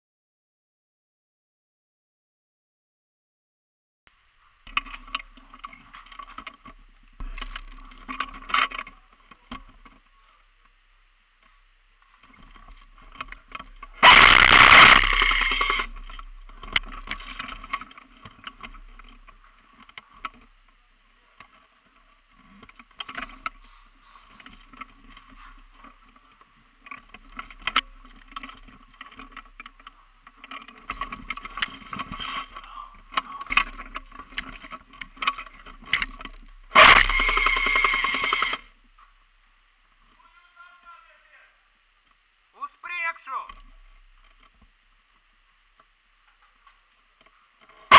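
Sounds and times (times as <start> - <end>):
airsoft gun bursts: 14.0 - 15.9, 36.7 - 38.7.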